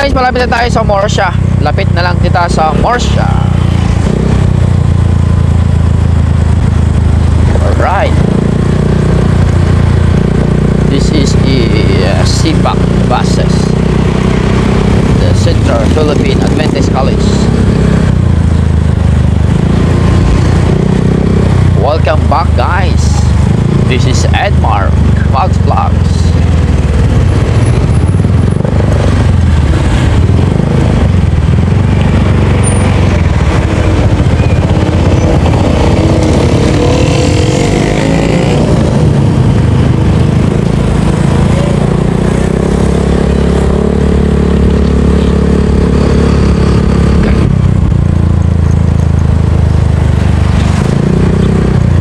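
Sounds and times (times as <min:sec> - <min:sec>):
motorcycle engine running: 0:00.0 - 0:52.0
rushing wind noise: 0:12.6 - 0:52.0.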